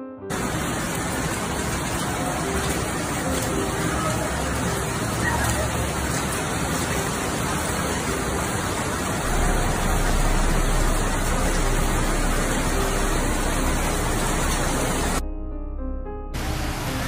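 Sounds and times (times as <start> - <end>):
rain: 0.3 - 15.2, 16.4 - 17.0
wind: 0.3 - 15.2
deep thunder rumble: 9.2 - 15.7.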